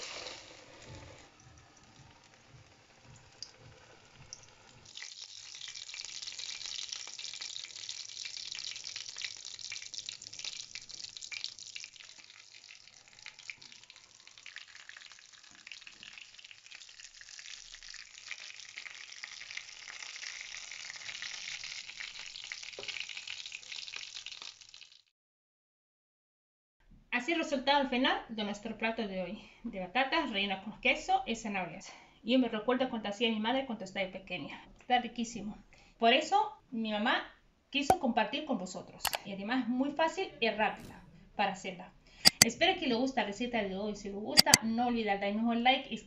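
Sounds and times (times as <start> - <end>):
hot oil sizzling and crackling: 0.0 - 25.1.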